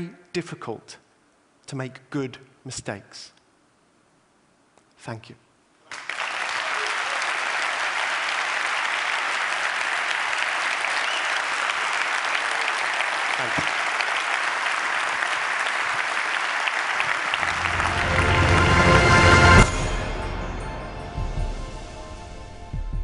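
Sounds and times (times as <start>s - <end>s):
audience applauding: 5.9s - 19.8s
music: 17.4s - 23.0s.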